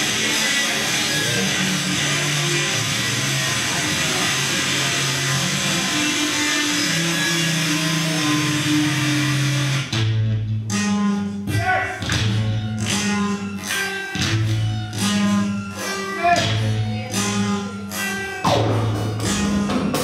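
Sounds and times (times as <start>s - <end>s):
electric bass guitar: 0.0s - 20.0s.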